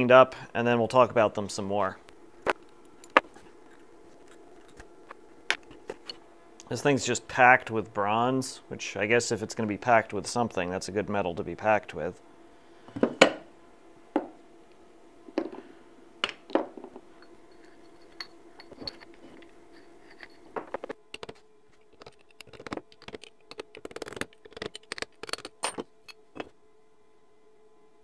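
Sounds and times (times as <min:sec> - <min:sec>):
steel parts clinking on bench: 0:17.2 - 0:20.5.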